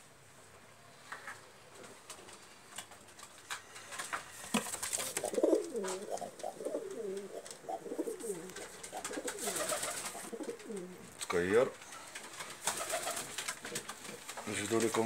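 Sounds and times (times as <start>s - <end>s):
pigeons cooing: 4.3s - 11.2s.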